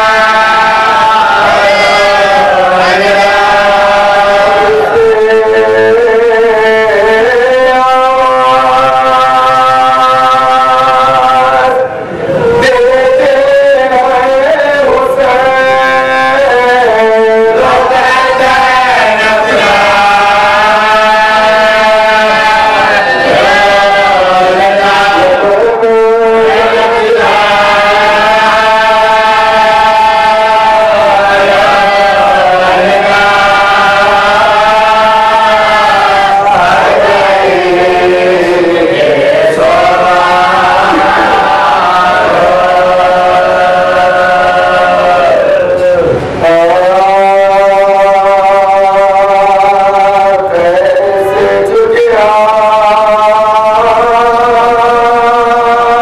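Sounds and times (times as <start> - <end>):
men chanting: 0.0 - 56.0.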